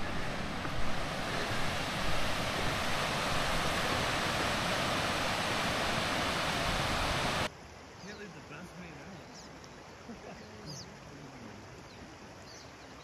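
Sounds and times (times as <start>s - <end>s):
wind buffeting microphone: 0.0s - 7.5s
stream water rushing: 0.0s - 13.0s.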